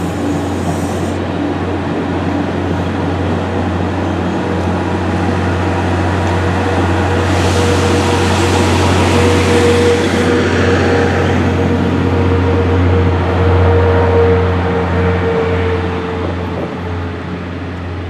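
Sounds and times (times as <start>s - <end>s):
train hiss: 0.0s - 1.3s, 6.8s - 11.8s.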